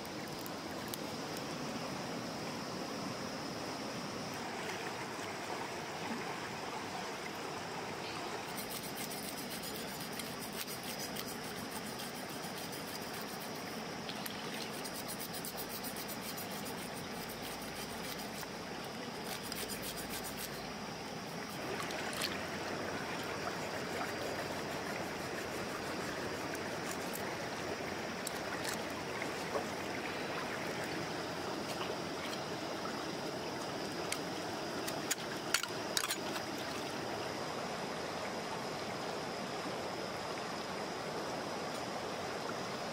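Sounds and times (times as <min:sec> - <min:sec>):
river water flowing over rocks: 0:00.0 - 0:42.9
knife scraping fish scales: 0:08.5 - 0:13.6, 0:14.8 - 0:18.5, 0:19.2 - 0:20.6.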